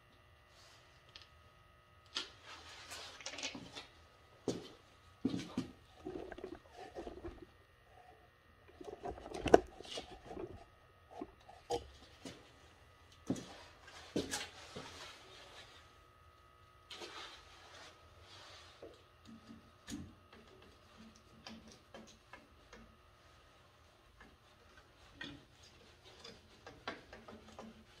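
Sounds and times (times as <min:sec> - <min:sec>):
plastic pipe knocks and scrapes: 0:05.3 - 0:07.5, 0:08.7 - 0:11.8.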